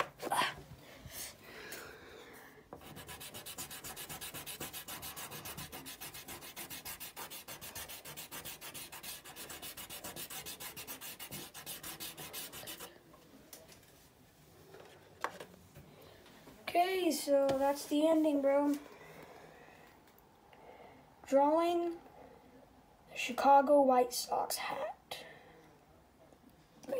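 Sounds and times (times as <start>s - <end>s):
oil pastel scratching on paper: 2.8s - 12.9s.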